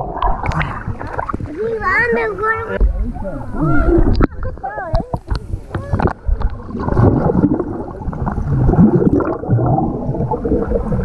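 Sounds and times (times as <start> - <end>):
underwater bubbling and churning: 0.0 - 11.0.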